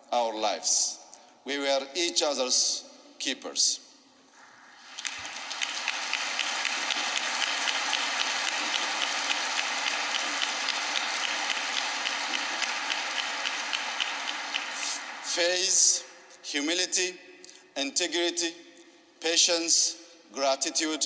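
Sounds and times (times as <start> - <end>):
audience applauding: 4.8 - 15.9.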